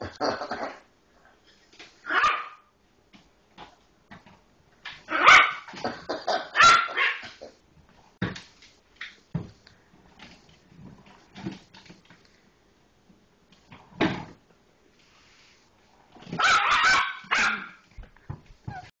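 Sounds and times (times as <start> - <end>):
puppy barking: 2.1 - 2.6, 5.1 - 5.7, 6.5 - 7.3, 16.4 - 17.8.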